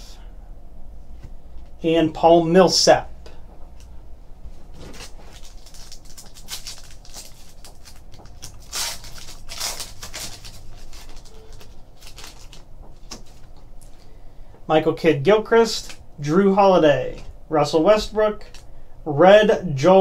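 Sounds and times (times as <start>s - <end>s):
foil wrapper crinkling and tearing: 4.8s - 14.0s, 18.4s - 18.6s.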